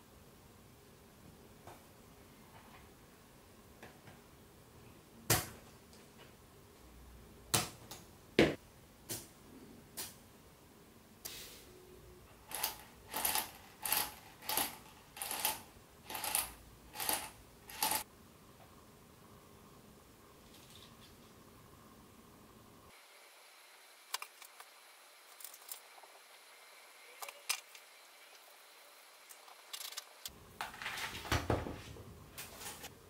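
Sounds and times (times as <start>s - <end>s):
small metal parts clicking: 12.5s - 18.0s.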